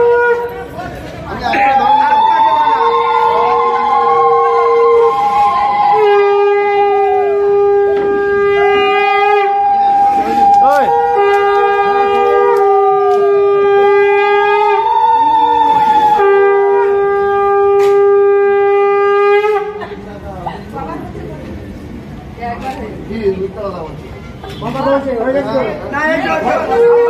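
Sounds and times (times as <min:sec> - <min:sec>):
high conch shell blast: 0:00.0 - 0:00.8, 0:02.8 - 0:19.8
low conch shell blasts: 0:00.0 - 0:00.8, 0:01.5 - 0:19.8.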